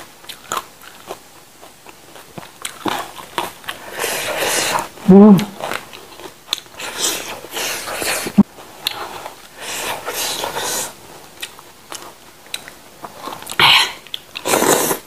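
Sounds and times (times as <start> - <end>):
wet chewing and smacking: 0.2 - 3.8, 11.2 - 14.5.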